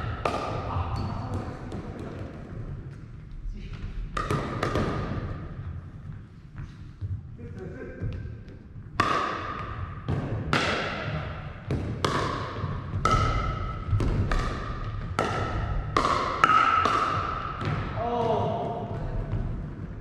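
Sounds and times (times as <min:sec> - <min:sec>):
paddles striking plastic ball: 0:11.7 - 0:17.8.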